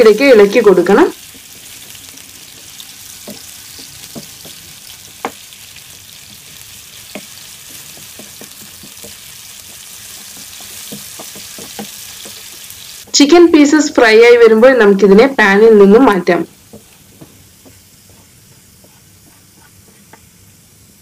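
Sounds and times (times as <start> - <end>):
chicken sizzling in a pan: 0.0 - 13.1, 16.1 - 21.0
spatula knocking against pan: 3.2 - 5.4, 7.1 - 12.7.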